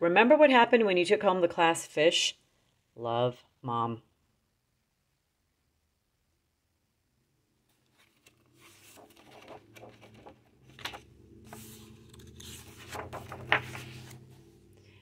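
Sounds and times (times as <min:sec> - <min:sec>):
book pages turning: 0:07.7 - 0:14.8.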